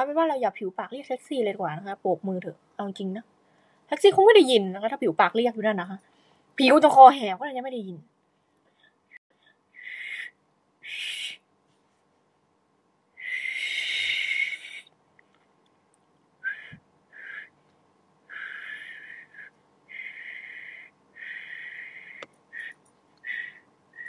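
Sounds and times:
breathy whistling attempts: 9.7 - 11.4, 13.2 - 14.9, 16.4 - 17.6, 18.3 - 24.0.

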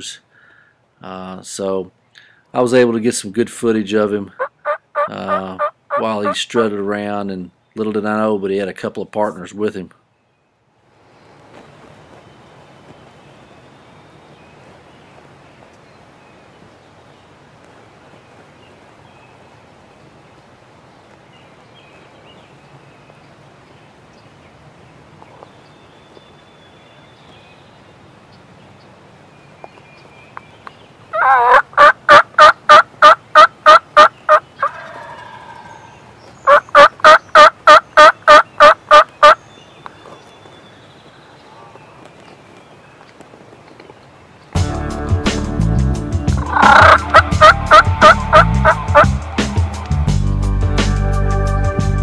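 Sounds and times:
wild turkey calling: 4.2 - 6.6, 30.0 - 42.2, 46.4 - 49.1.

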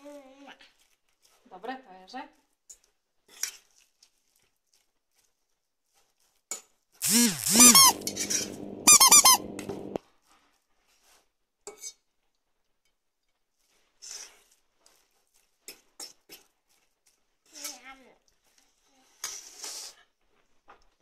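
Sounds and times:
steady low hum: 7.0 - 10.0.

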